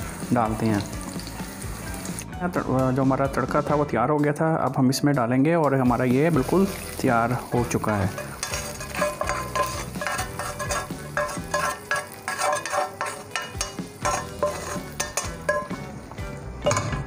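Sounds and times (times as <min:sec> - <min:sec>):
hot oil sizzling and crackling: 0:00.0 - 0:02.4, 0:05.7 - 0:17.0
spoon scraping frying pan: 0:07.6 - 0:17.0.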